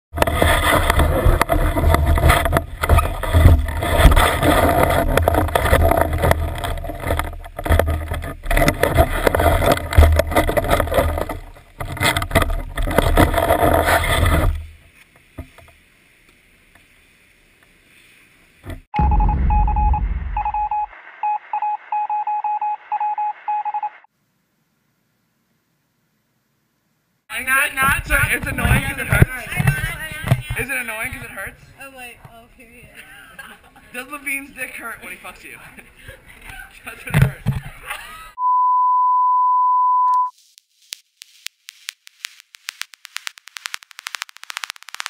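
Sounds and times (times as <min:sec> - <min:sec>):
snowboard scraping over snow: 0:00.2 - 0:07.1, 0:08.4 - 0:11.6
short electronic beeps: 0:19.0 - 0:24.1, 0:38.4 - 0:40.4.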